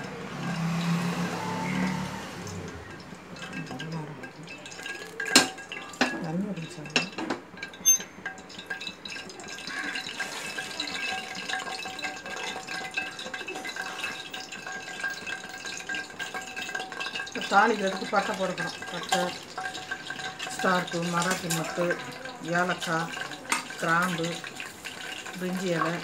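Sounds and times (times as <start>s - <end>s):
faint sizzle and crackle: 0.0s - 26.0s
sharp metal clinks: 7.8s - 8.2s.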